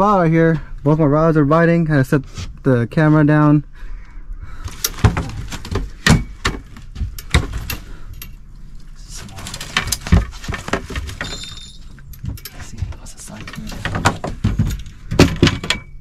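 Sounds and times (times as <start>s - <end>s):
knocks and rattles on boat deck: 12.2s - 16.0s.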